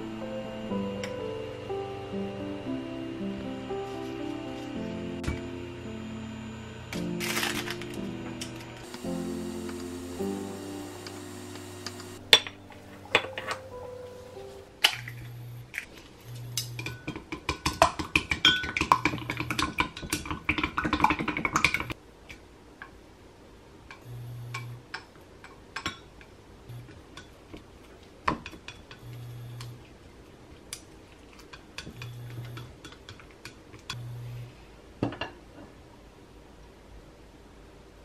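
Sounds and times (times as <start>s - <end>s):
low hum: 0.0s - 17.0s, 34.0s - 34.6s.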